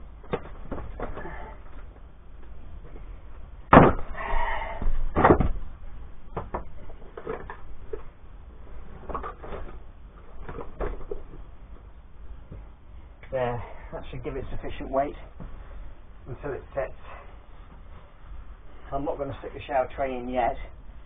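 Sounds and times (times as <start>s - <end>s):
box bumping: 4.8s - 5.6s.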